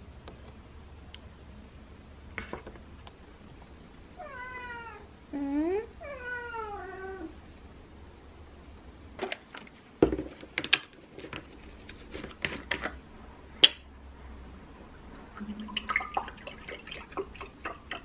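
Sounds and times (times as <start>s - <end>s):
milk pouring into a glass: 15.3s - 17.8s.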